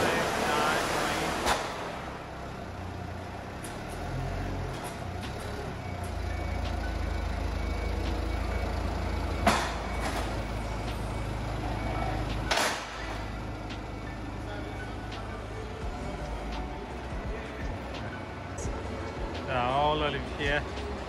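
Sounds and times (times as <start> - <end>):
mill machinery humming: 0.0 - 21.0
loud metal clanks: 9.4 - 10.4, 12.4 - 13.2.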